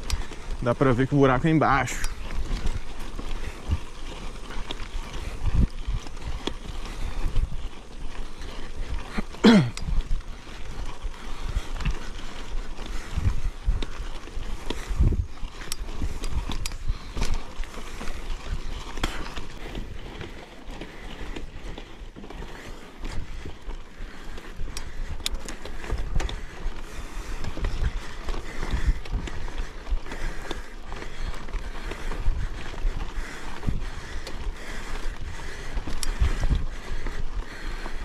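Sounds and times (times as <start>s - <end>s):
bike rattling over rough trail: 0.0s - 38.0s
wind rumble on microphone: 2.0s - 9.0s, 9.8s - 20.2s, 24.6s - 30.3s, 31.0s - 38.0s.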